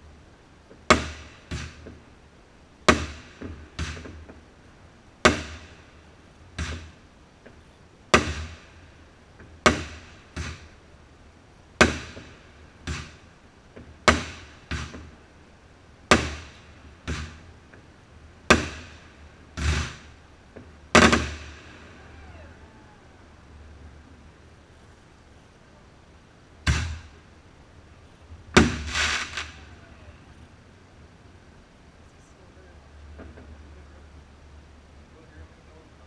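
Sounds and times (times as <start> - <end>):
fireworks bangs echoing: 11.8 - 13.3, 14.0 - 15.2, 16.1 - 17.5, 18.5 - 23.6, 26.6 - 27.3, 28.5 - 30.5.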